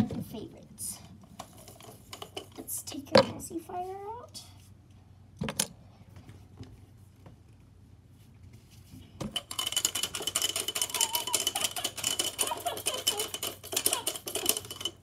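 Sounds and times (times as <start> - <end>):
plastic toy rattle shaken: 9.3 - 15.0.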